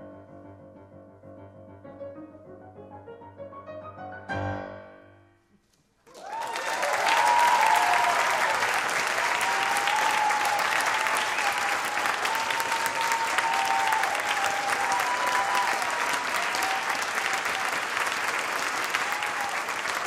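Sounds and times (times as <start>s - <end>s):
piano chord ringing: 0.0s - 5.4s
loud applause: 6.0s - 20.0s
long cheer or whistle: 6.1s - 20.0s.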